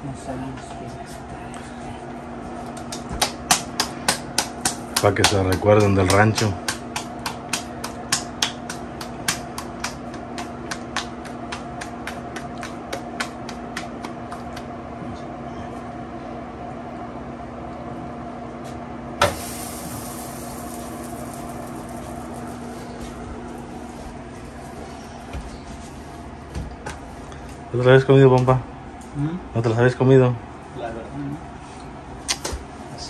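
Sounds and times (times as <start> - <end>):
hands slapping dough: 2.7 - 14.7
low steady hum: 19.1 - 30.6.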